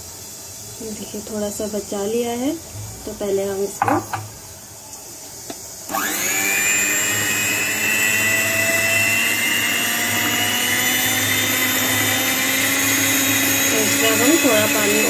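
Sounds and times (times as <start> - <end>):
electric hand mixer whining: 5.9 - 15.0.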